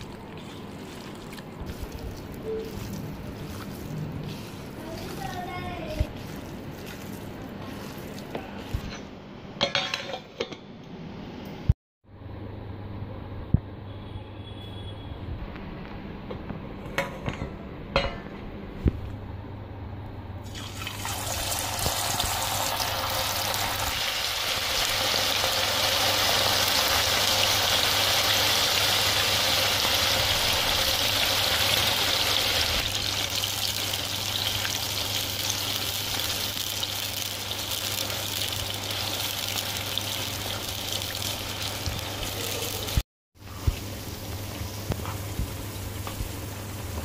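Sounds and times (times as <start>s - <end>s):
meat sizzling in hot oil: 20.5s - 43.0s.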